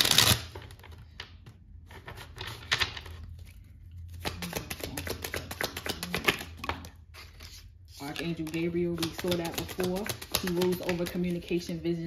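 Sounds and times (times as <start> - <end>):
cards being shuffled: 1.9 - 11.6.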